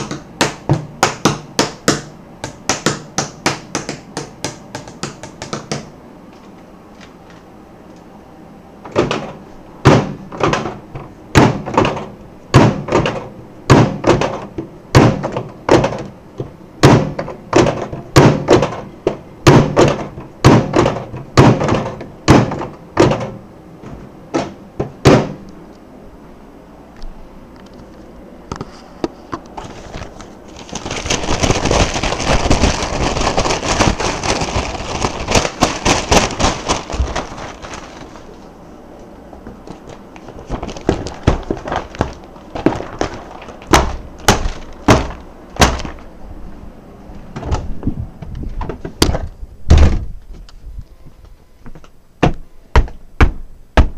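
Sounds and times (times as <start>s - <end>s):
sharp knocks: 16.8s - 25.4s.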